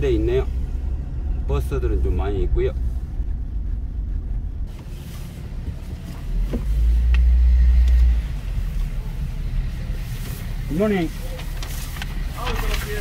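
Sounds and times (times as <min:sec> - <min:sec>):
car engine rumble from inside: 0:00.0 - 0:13.0.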